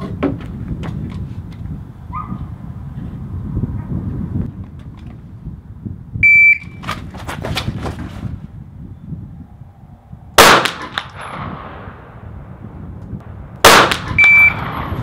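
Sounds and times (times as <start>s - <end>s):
pistol shots with echo: 10.4s - 12.2s, 13.6s - 15.0s.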